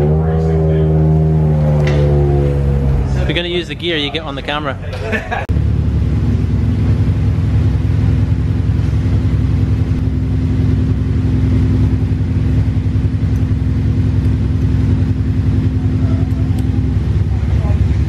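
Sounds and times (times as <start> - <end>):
race car engine idling: 0.0 - 18.0.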